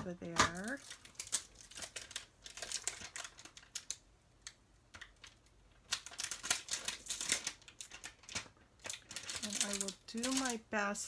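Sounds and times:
paper rustling: 5.0 - 10.6.

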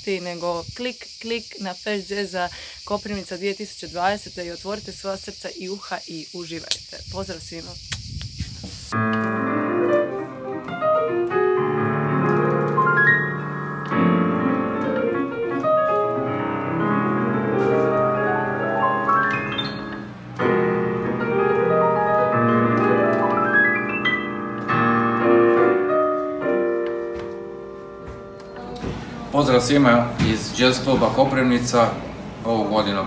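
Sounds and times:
piano chords and runs: 9.0 - 32.8.

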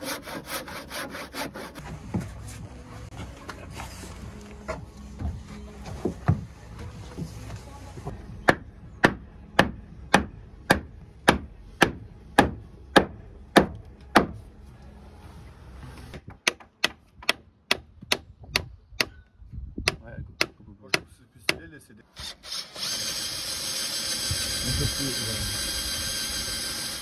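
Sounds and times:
hammer striking timber: 8.4 - 14.4, 16.2 - 19.2, 19.8 - 21.6.

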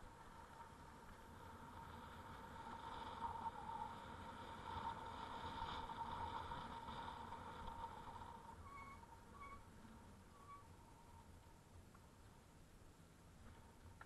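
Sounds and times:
bicycle whirring hum: 0.0 - 14.0
road noise: 0.0 - 14.0
short high squeaks: 8.4 - 11.3.

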